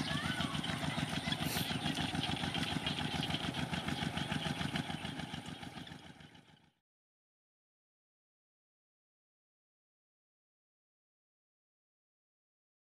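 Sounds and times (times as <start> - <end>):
small engine running: 0.0 - 6.8.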